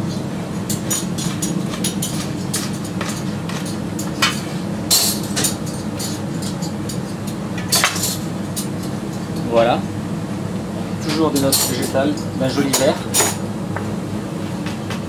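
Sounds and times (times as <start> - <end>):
kitchen ventilation hum: 0.0 - 15.0
dishes clattering: 0.7 - 9.5, 11.0 - 13.4
utensils and dishes clicking: 0.7 - 9.6, 11.0 - 13.4.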